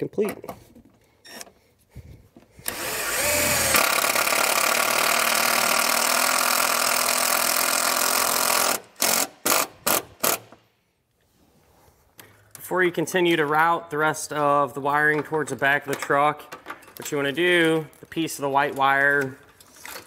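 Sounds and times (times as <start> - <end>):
impact driver driving screw into metal: 2.7 - 10.6.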